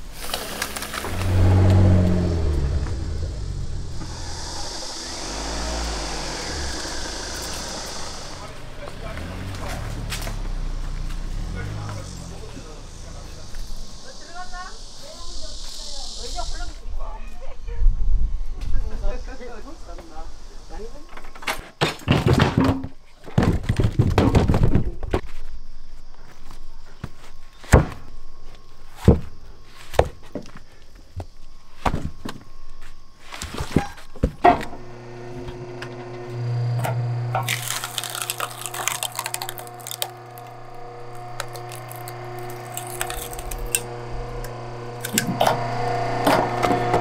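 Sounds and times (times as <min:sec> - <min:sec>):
sharp knocks and thunks: 0:21.8 - 0:25.2
background music with low drone: 0:37.6 - 0:47.0.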